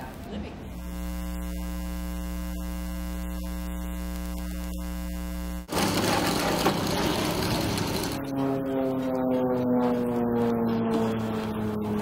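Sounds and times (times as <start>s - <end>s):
electrical mains hum: 0.0s - 8.3s
rough outdoor noise: 0.0s - 9.1s.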